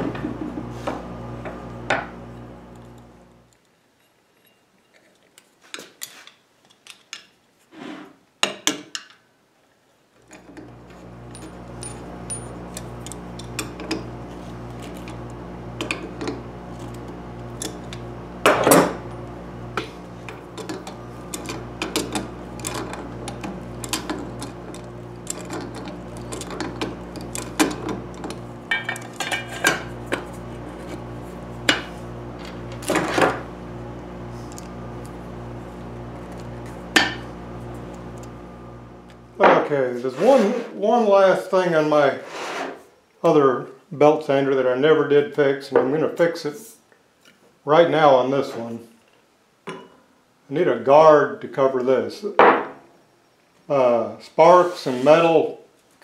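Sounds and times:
steady low hum: 10.3 - 40.2.

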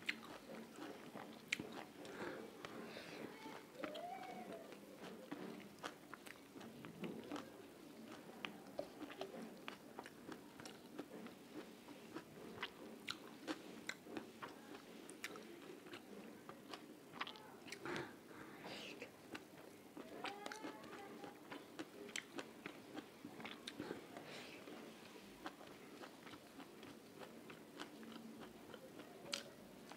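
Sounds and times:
person chewing food: 0.0 - 29.9.

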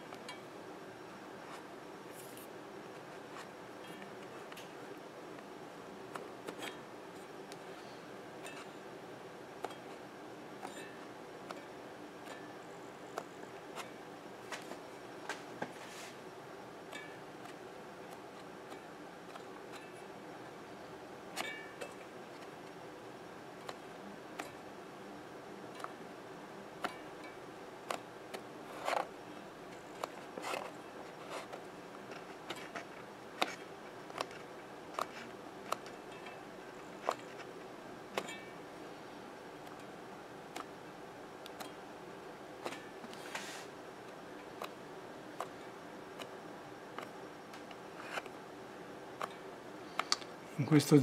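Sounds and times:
faint steady hum: 0.0 - 51.0
hands clicking and tapping speaker: 50.0 - 50.3.

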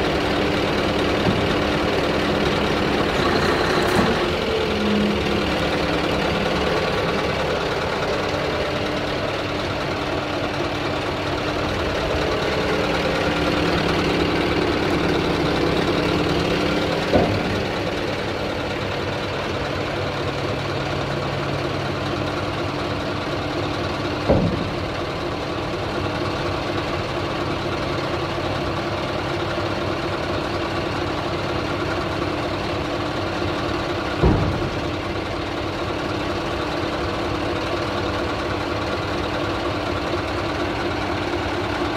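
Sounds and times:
diesel engine idling: 0.0 - 41.9
tipper body clunks: 16.4 - 18.1.

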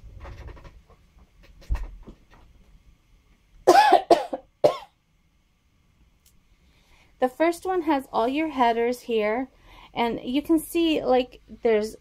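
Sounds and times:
woman coughing: 3.7 - 5.0.

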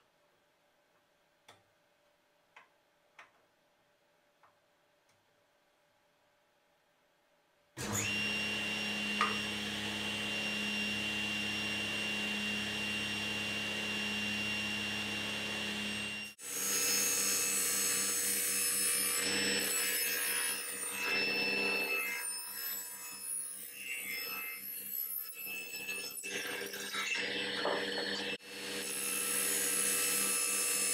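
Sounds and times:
table saw whining: 7.8 - 30.9
saw ripping through wood: 25.4 - 30.9.

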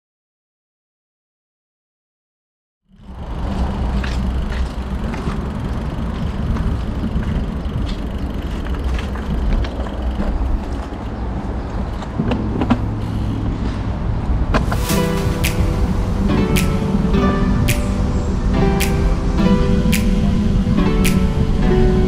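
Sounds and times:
bike clicks and rattles: 2.9 - 13.0
wind and tyres rumbling on road: 2.9 - 22.0.

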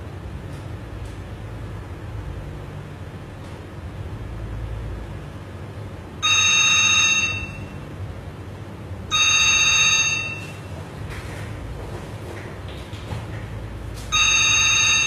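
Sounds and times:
telephone electronic trilling ring: 6.2 - 7.8, 9.1 - 10.6, 14.1 - 15.0.

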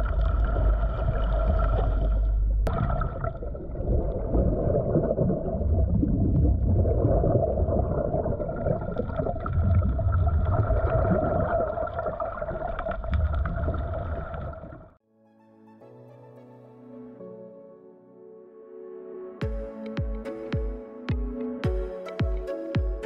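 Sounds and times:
underwater exhaled bubbles: 0.0 - 15.0.

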